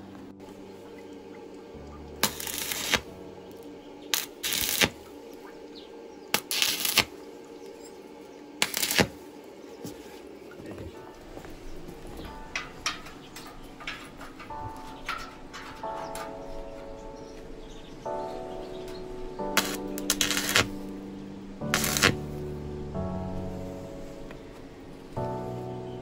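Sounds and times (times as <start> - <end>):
welding arc crackling and hissing: 2.2 - 3.2, 4.1 - 5.1, 6.3 - 7.2, 8.6 - 9.3, 19.5 - 20.9, 21.6 - 22.3.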